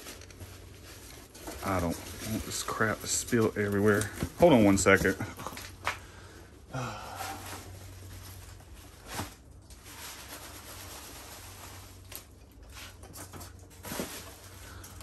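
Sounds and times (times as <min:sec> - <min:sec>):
packing peanuts rustling in box: 0:00.0 - 0:05.1, 0:07.3 - 0:13.0
low steady hum: 0:00.0 - 0:15.0.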